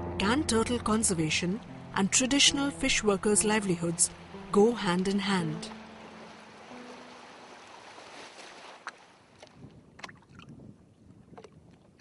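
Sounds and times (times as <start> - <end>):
water washing and lapping: 3.2 - 10.6.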